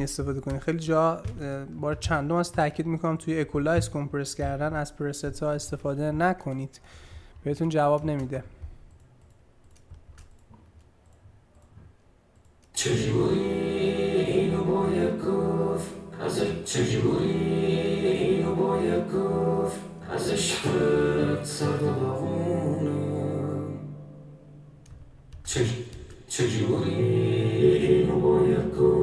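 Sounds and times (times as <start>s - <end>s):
faint clicks: 7.5s - 12.8s
pop vocal song: 12.7s - 24.6s, 25.4s - 29.0s.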